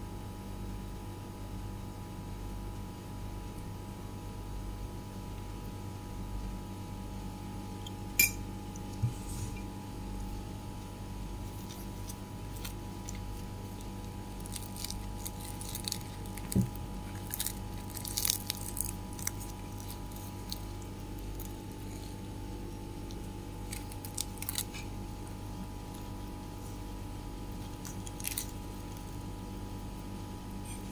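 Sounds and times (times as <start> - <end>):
steady low hum: 0.0 - 30.9
flatbread crackling and rustling: 8.8 - 30.9.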